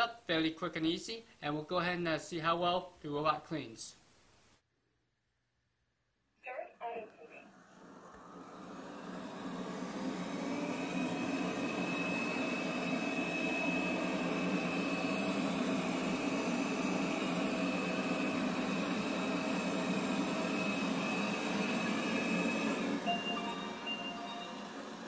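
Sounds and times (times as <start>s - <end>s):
robot vacuum whirring: 7.4s - 25.0s.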